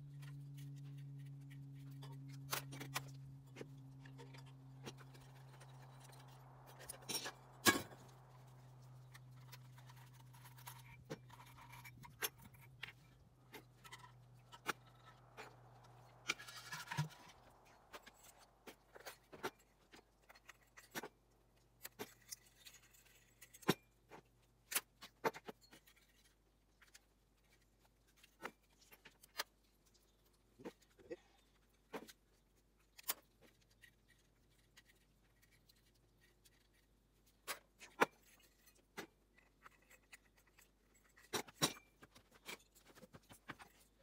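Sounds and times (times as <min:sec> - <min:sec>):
metal parts clinking and scraping: 0:00.1 - 0:24.0, 0:37.4 - 0:44.0.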